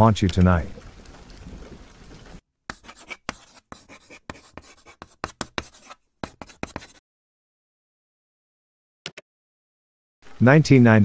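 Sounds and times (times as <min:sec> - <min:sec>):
chalk scratching on chalkboard: 0:02.7 - 0:07.0.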